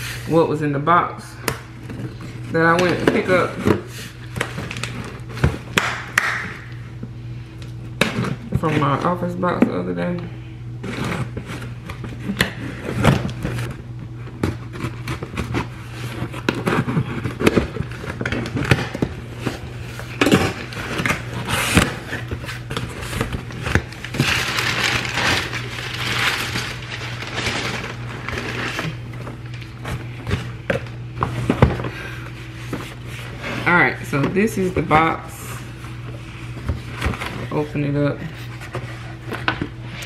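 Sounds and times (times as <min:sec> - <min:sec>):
steady low hum: 0:00.0 - 0:40.0
rustling: 0:20.7 - 0:30.2.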